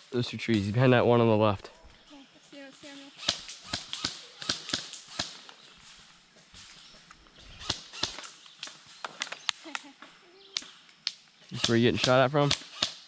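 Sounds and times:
airsoft guns firing: 3.2s - 5.4s, 7.6s - 8.4s, 11.6s - 13.0s.

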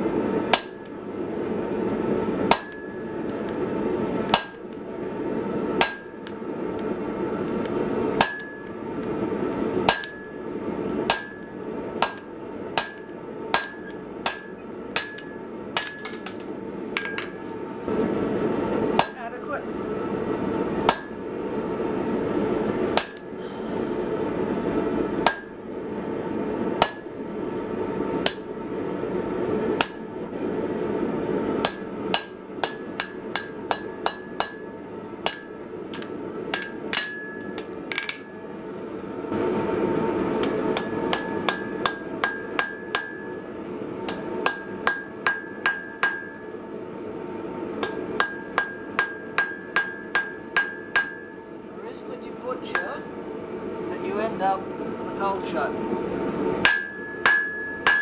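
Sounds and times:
hammer striking steel on anvil: 0.5s - 1.0s, 2.5s - 3.5s, 4.3s - 4.6s, 5.8s - 6.4s, 8.2s - 8.8s, 9.9s - 10.4s, 11.1s - 17.4s, 19.0s - 19.2s, 20.9s - 21.2s, 23.0s - 23.3s, 25.2s - 25.5s, 26.8s - 27.1s, 28.2s - 28.5s, 29.8s - 30.1s, 31.6s - 38.4s, 40.4s - 43.4s, 44.0s - 46.5s, 47.8s - 51.4s, 56.6s - 58.0s
anvil ringing: 8.2s - 8.7s, 9.9s - 10.4s, 12.8s - 16.4s, 36.6s - 38.3s, 56.6s - 58.0s.

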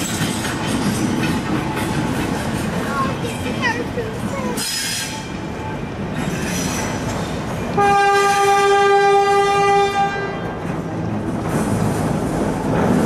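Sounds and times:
train running on rails: 0.0s - 13.0s
locomotive horn blast: 7.8s - 10.6s.

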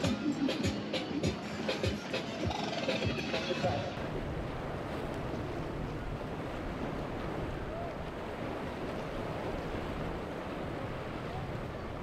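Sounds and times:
seawater lapping and sloshing: 1.3s - 12.0s
wind buffeting the microphone: 4.0s - 12.0s.

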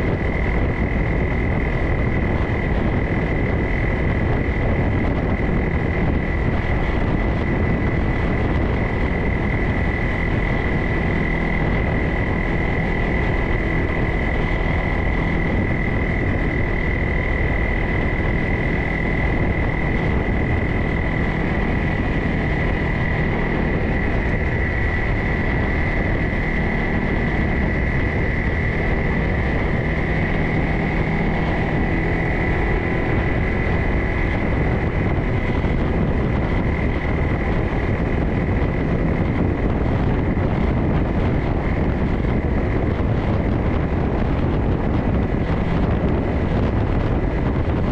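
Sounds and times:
high-pitched whine: 0.0s - 47.9s
off-road vehicle engine rumble: 0.0s - 47.9s.

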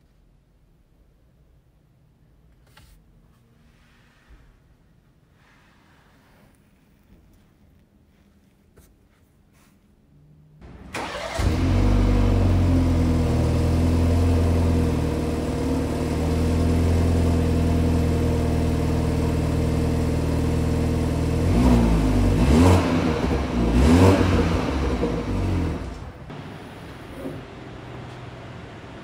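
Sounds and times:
car engine revving: 10.6s - 29.0s
car engine starting and idling: 10.6s - 29.0s.

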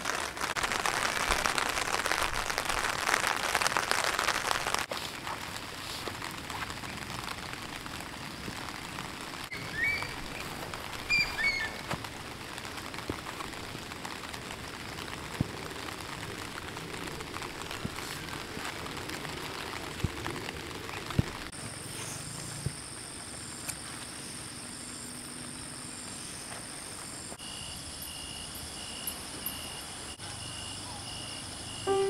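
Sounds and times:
steady rain: 0.0s - 32.0s
bird chirping: 9.5s - 10.5s, 11.1s - 11.8s.

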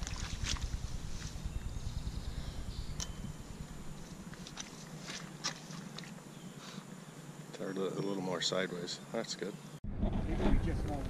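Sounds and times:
footsteps in brush: 0.0s - 1.7s, 3.9s - 6.2s
wind rumble on microphone: 0.0s - 4.7s, 9.8s - 11.0s.

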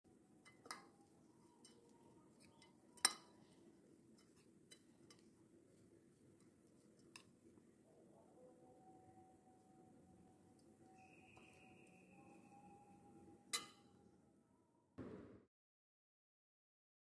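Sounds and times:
metal spoon clinking on plate: 0.4s - 3.6s, 13.4s - 14.0s.

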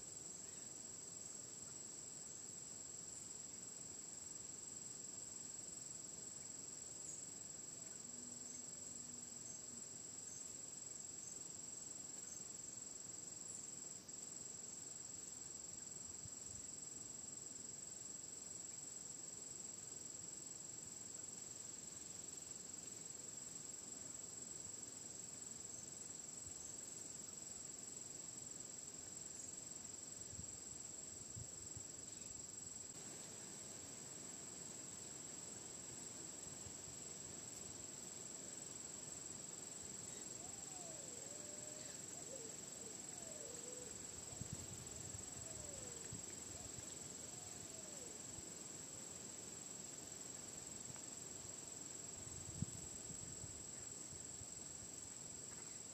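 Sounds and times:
insects trilling: 21.0s - 55.9s.

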